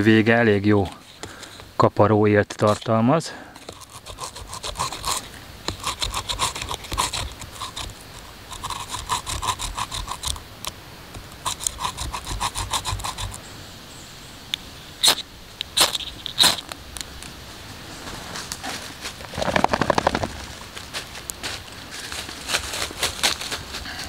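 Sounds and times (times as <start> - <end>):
ferrocerium rod scraping: 3.6 - 10.4
knife scraping bark: 3.6 - 10.4, 11.2 - 13.4, 15.0 - 16.7.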